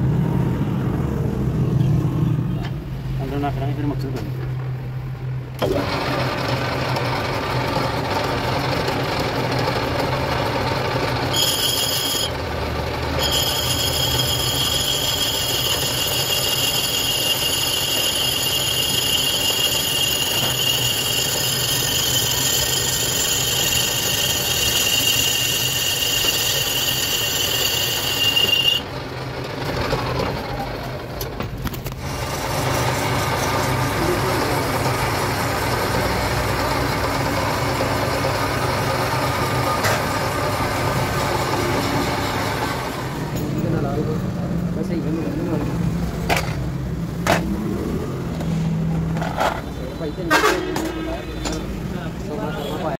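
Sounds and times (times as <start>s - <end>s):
lathe humming: 5.6s - 29.8s, 32.0s - 43.4s
loud high cutting squeal: 11.2s - 12.4s, 13.1s - 28.9s.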